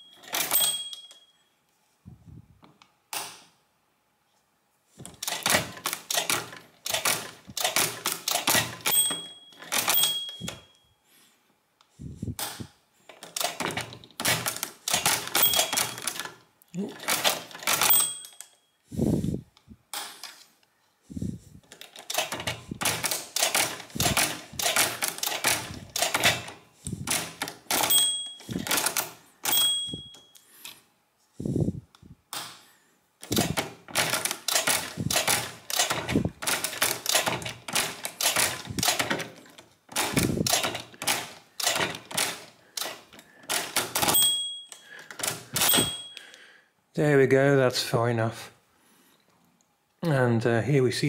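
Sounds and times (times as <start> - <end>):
mechanical calculator clicking: 0.0 - 1.2, 5.2 - 10.7, 13.1 - 16.4, 17.0 - 18.5, 21.7 - 30.2, 33.2 - 46.3
small bell dings: 0.0 - 1.5, 8.9 - 10.9, 27.9 - 28.5, 29.5 - 30.4, 44.2 - 44.9, 45.7 - 46.3.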